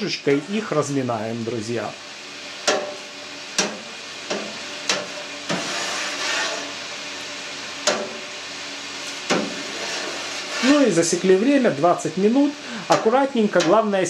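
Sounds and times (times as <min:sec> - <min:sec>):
faint steady hum: 0:00.0 - 0:14.0
wet swishing of stirring: 0:05.4 - 0:06.8, 0:09.0 - 0:11.0.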